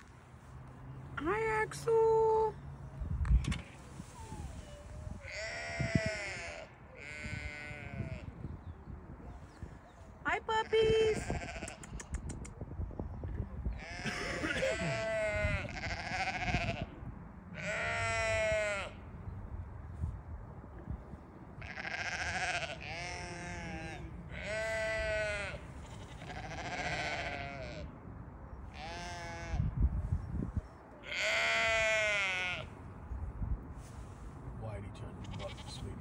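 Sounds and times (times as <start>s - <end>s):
sheep bleating: 5.2s - 8.4s, 11.0s - 11.8s, 13.8s - 17.0s, 17.6s - 19.0s, 21.6s - 27.9s, 28.8s - 29.7s, 31.0s - 32.7s, 35.2s - 35.9s.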